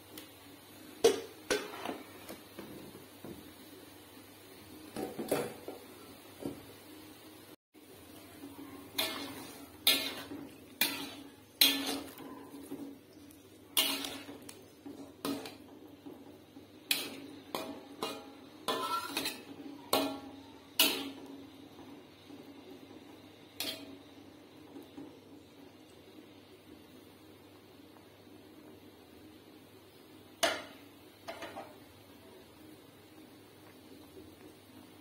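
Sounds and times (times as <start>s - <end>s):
metal spatula clanking on wok: 8.9s - 12.8s, 13.8s - 15.7s, 16.9s - 21.3s, 23.6s - 24.0s.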